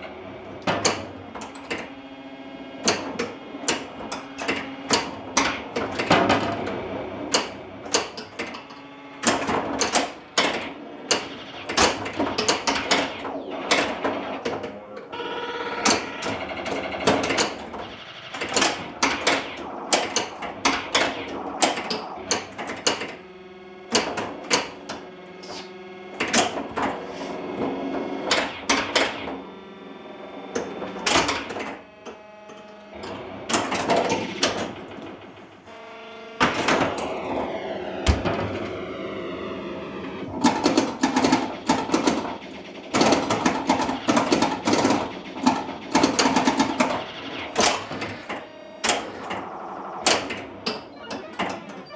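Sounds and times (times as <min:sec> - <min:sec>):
pinball flippers and bumpers clacking: 0:00.4 - 0:02.0, 0:02.7 - 0:23.2, 0:23.9 - 0:25.2, 0:26.1 - 0:29.5, 0:30.5 - 0:35.7, 0:36.4 - 0:51.9
electronic game sound effects: 0:02.9 - 0:51.9
falling sweeping tones: 0:36.8 - 0:41.6.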